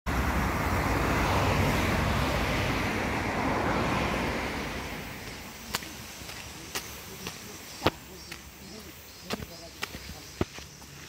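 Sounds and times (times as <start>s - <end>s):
car driving past: 0.1s - 6.9s.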